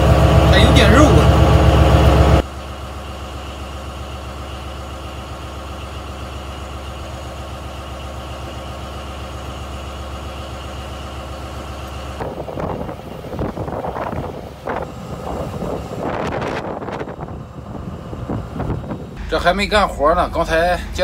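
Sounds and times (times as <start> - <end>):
boat engine drone: 0.0 - 21.0.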